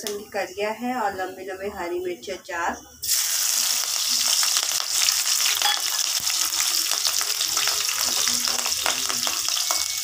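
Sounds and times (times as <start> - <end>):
garlic and chillies sizzling in oil: 3.0 - 10.0.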